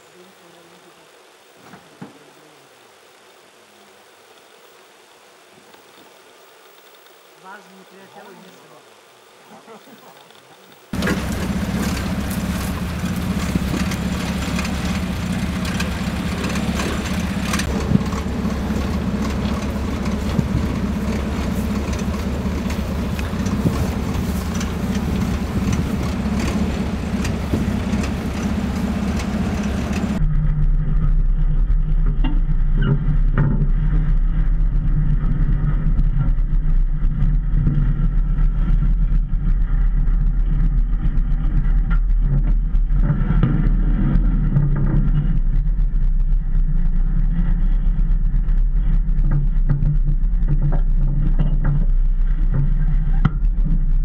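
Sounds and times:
vehicle engine running: 0:10.9 - 0:54.0.

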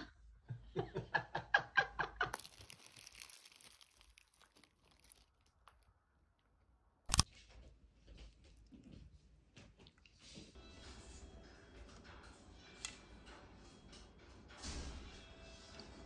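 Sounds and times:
plastic glove crinkling: 0:02.3 - 0:06.0.

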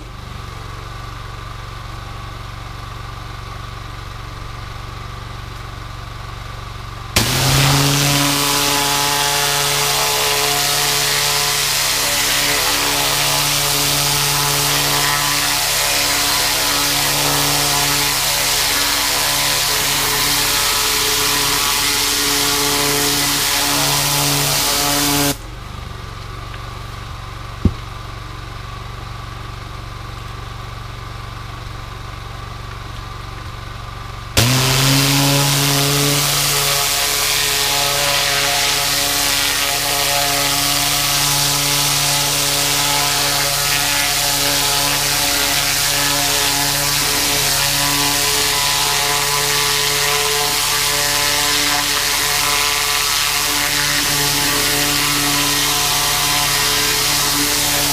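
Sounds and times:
pressure washer engine running: 0:00.0 - 0:31.5, 0:32.1 - 0:57.9
water jet hissing: 0:07.2 - 0:25.4, 0:34.4 - 0:57.9.

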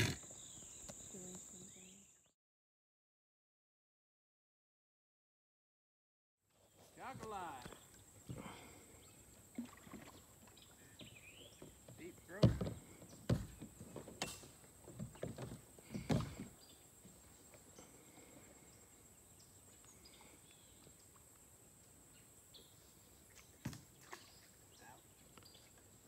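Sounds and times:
kayak paddle knocking and splashing: 0:09.5 - 0:17.7, 0:23.3 - 0:24.6.

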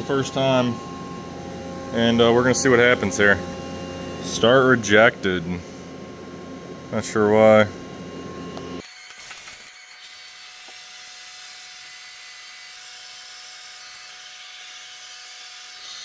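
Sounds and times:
faint steady whine: 0:00.0 - 0:08.8.

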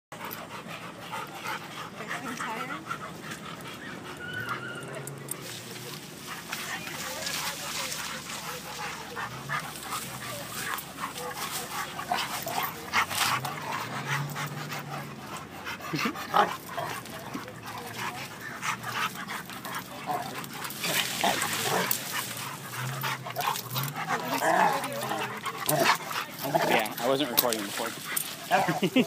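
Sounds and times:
dogs panting: 0:00.1 - 0:29.0
dogs scuffling through dry plants: 0:01.6 - 0:15.1, 0:16.0 - 0:29.0.

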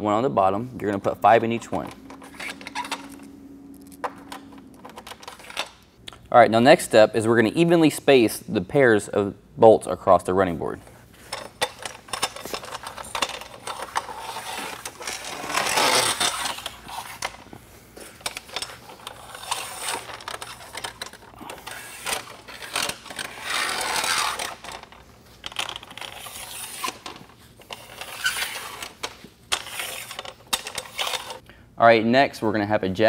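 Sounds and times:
bolts scraping along metal: 0:00.4 - 0:06.0, 0:10.7 - 0:31.4.

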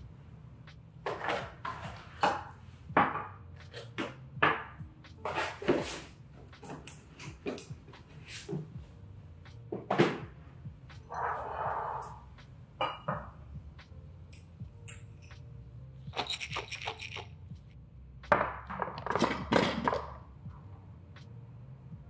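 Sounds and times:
pellets rattling in jar: 0:16.1 - 0:17.3
jar clattering and scraping: 0:16.1 - 0:17.4.

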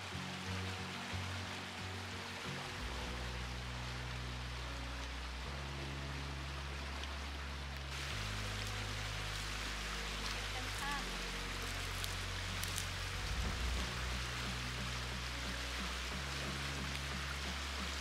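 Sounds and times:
soft music of low held notes: 0:00.0 - 0:18.0
stream running over stones: 0:00.0 - 0:18.0
rustles: 0:06.9 - 0:18.0.

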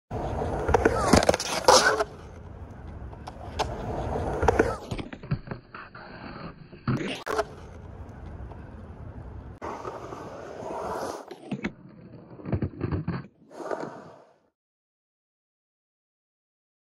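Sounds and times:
skateboard clacks: 0:00.1 - 0:05.6, 0:06.9 - 0:14.0
skateboard wheels rolling on concrete: 0:00.1 - 0:14.5.

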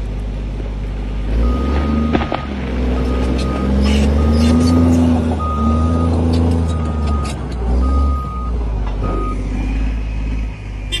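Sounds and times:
diesel bulldozer engine running: 0:00.0 - 0:11.0
reversing alarm beeps: 0:03.0 - 0:09.4.

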